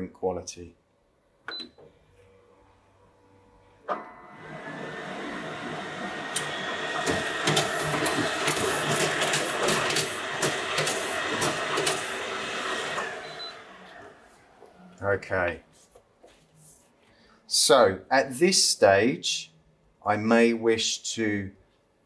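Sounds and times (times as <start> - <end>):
printer click: 6.2 - 13.2
printing machine clicking and clatter: 6.3 - 13.2.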